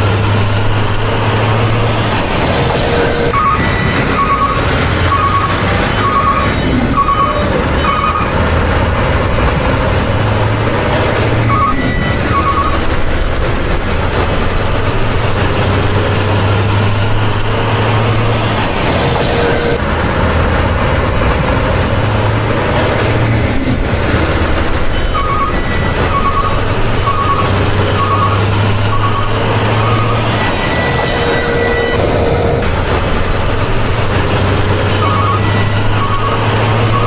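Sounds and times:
diesel truck engine running: 0.0s - 37.0s.

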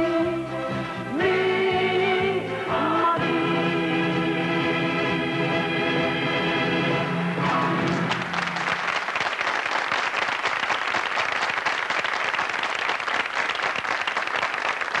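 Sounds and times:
audience applauding: 7.4s - 15.0s.

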